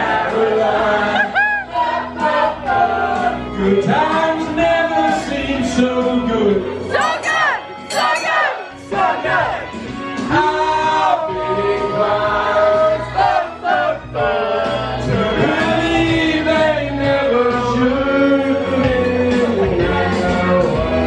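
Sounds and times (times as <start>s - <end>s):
backing music: 0.0s - 21.0s
man singing into microphone: 3.5s - 7.2s, 10.2s - 13.0s, 14.2s - 21.0s.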